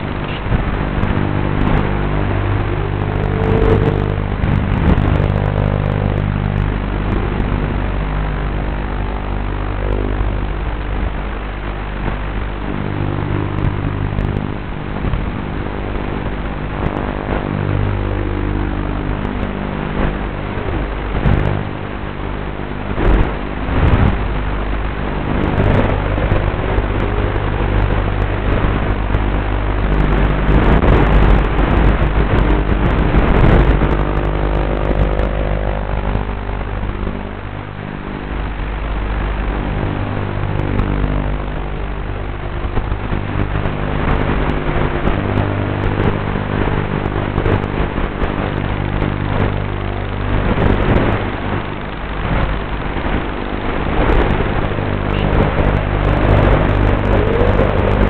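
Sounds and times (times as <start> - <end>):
quadcopter motors whining: 0.0 - 10.4, 53.9 - 58.0.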